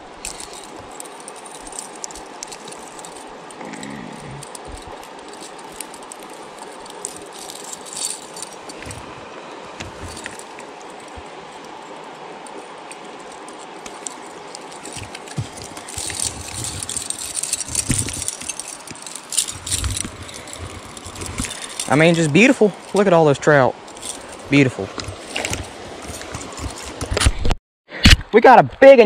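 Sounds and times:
creek rushing: 0:00.0 - 0:27.2
metal chain jangling: 0:00.2 - 0:09.1, 0:09.9 - 0:27.0.

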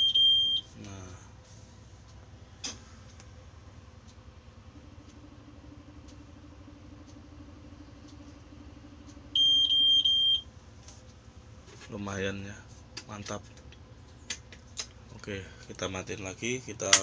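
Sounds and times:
dashboard warning buzzer beeping: 0:00.0 - 0:00.8, 0:04.8 - 0:10.5
low steady electrical hum: 0:00.0 - 0:17.0
second steady hum: 0:00.0 - 0:17.0
faint ticking: 0:00.8 - 0:11.4.

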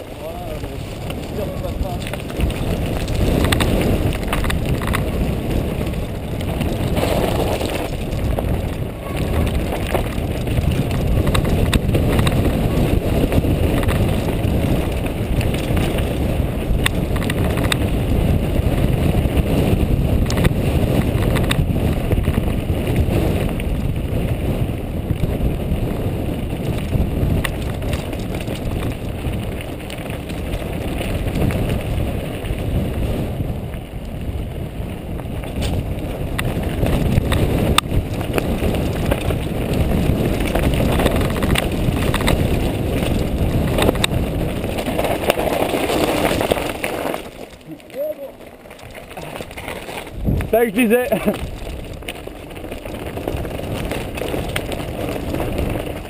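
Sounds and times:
tyres crunching on gravel: 0:00.0 - 0:23.7, 0:34.9 - 0:56.0
bike rattling over rocks: 0:00.0 - 0:56.0
wind buffeting microphone: 0:00.0 - 0:56.0.

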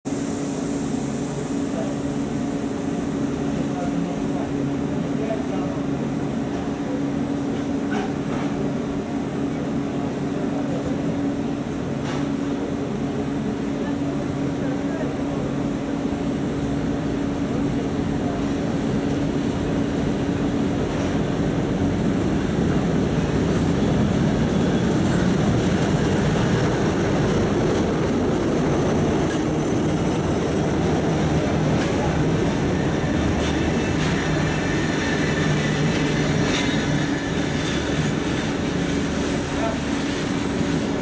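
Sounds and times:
diesel locomotive engine droning: 0:00.1 - 0:41.0
train wheels clicking over rail joints: 0:25.1 - 0:41.0.

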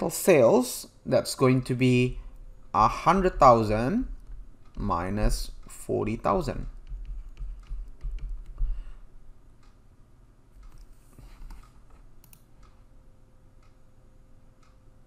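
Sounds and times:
computer clicks and taps: 0:03.2 - 0:09.0.

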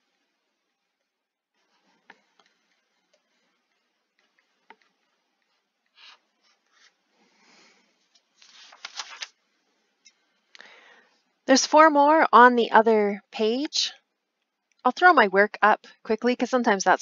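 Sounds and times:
stylus scratching on tablet screen: 0:01.6 - 0:07.0.

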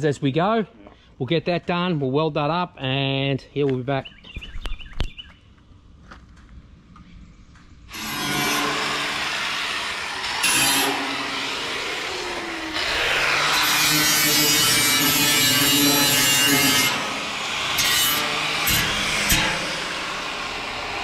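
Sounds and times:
angle grinder grinding steel: 0:07.9 - 0:21.0.

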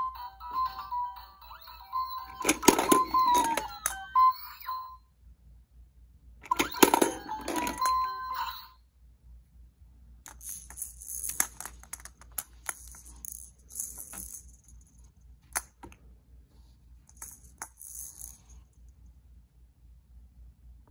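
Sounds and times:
toy electronic jingle: 0:00.0 - 0:05.0, 0:06.4 - 0:08.8
plastic balls rattling and clicking: 0:02.3 - 0:04.1, 0:06.5 - 0:08.0, 0:10.3 - 0:14.9.

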